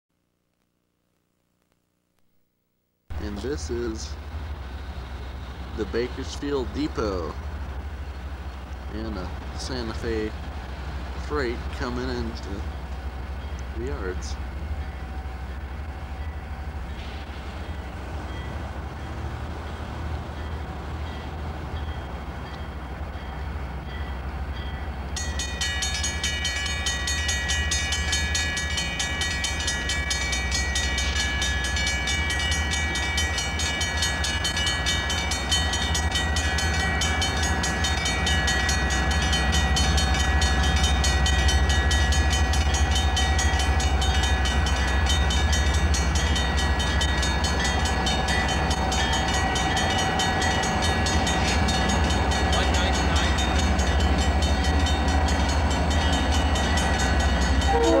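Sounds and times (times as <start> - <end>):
diesel locomotive engine rumble: 3.1 - 58.0
locomotive bell ringing: 20.3 - 58.0.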